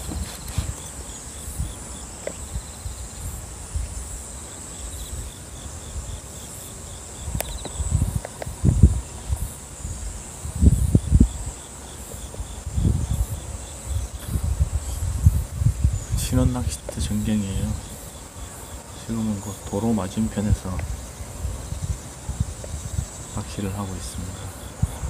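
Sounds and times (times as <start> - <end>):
fast pulsing insect call: 0.0 - 25.0
insects chirring: 0.0 - 25.0
low rumbling on microphone: 7.2 - 11.6, 12.3 - 18.0, 19.0 - 25.0.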